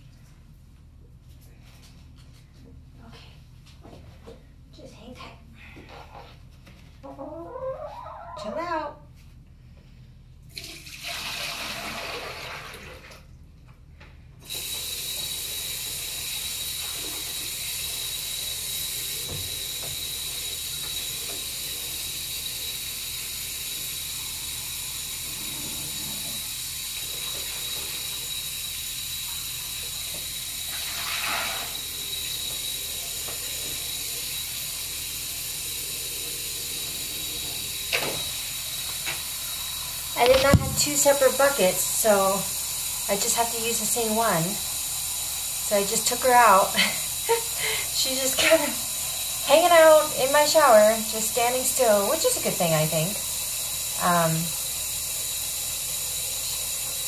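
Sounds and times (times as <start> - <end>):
tap water running into bucket: 10.5 - 13.4, 14.4 - 57.0.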